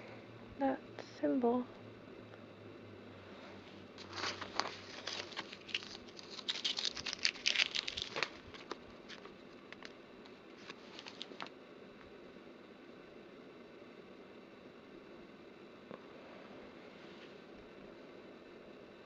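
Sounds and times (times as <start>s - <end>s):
paper envelopes rustling: 4.0s - 11.5s.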